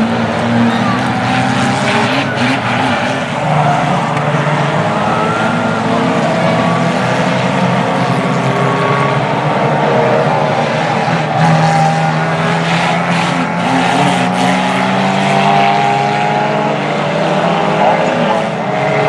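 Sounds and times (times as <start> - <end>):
small car engines droning: 0.0 - 19.0.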